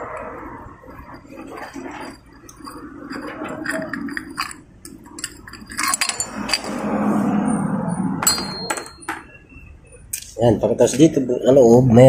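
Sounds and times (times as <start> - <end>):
metal tool clicking on screws: 3.6 - 6.7.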